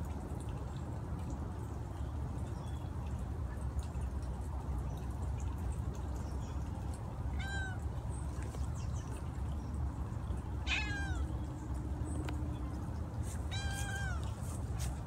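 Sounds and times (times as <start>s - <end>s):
low background rumble: 0.5s - 15.0s
cat meowing: 7.4s - 7.8s, 10.6s - 11.3s, 13.5s - 14.3s.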